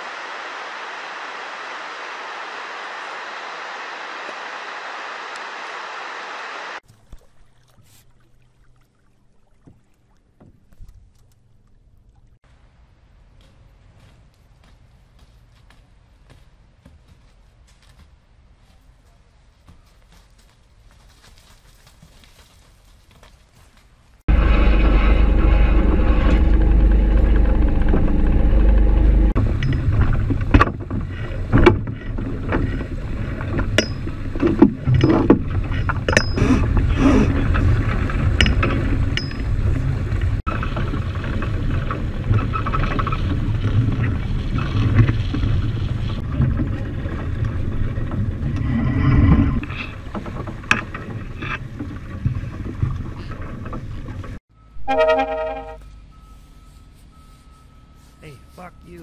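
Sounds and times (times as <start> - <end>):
water rushing along hull: 0.0 - 12.4, 24.3 - 54.4
sharp knocks and clicks: 37.5 - 39.5.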